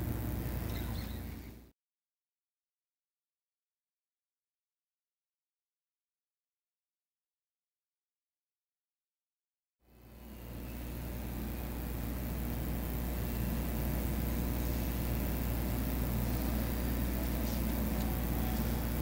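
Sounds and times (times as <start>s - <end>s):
low electrical hum: 0.0s - 1.7s, 9.9s - 19.0s
faint hiss: 10.0s - 19.0s.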